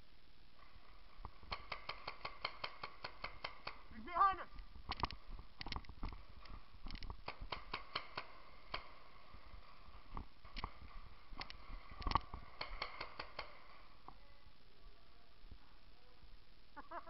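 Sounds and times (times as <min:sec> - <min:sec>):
paintball markers firing: 0:01.2 - 0:03.9, 0:04.8 - 0:13.8.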